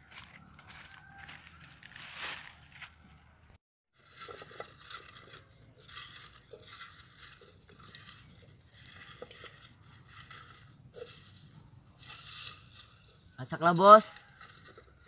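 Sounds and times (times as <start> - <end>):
utensil stirring in metal pot: 4.0 - 15.0
wood fire crackling: 4.0 - 15.0.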